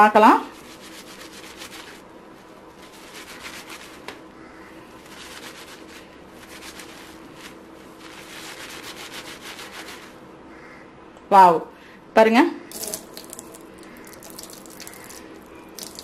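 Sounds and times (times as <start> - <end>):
wet rubbing of lathered hair: 0.5 - 4.1, 5.0 - 10.2, 12.7 - 16.0.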